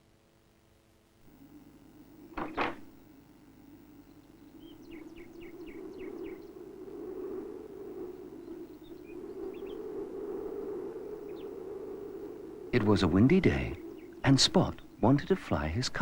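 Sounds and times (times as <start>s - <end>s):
wind whoosh: 5.0s - 15.0s.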